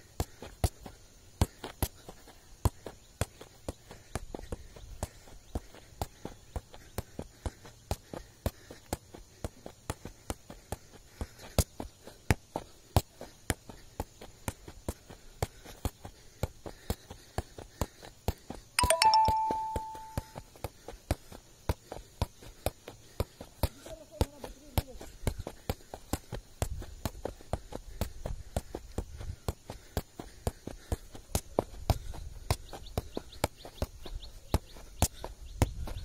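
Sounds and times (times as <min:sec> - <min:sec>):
two-note chime: 0:18.8 - 0:20.4.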